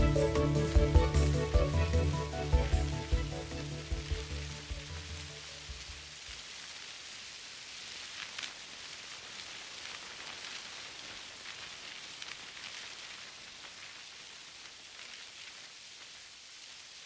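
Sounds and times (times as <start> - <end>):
recorded rain hiss and patter: 0.0 - 17.0.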